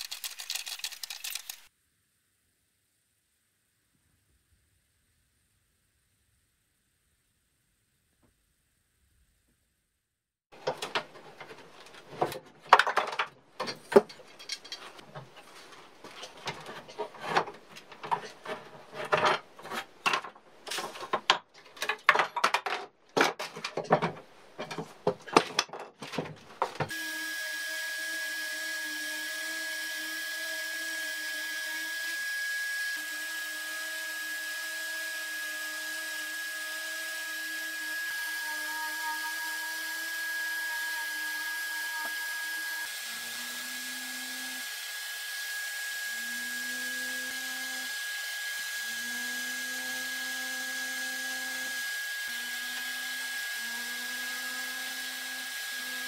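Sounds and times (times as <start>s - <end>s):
clamps clicking and knocking: 10.6s - 15.0s
orbital sander humming: 26.9s - 56.0s.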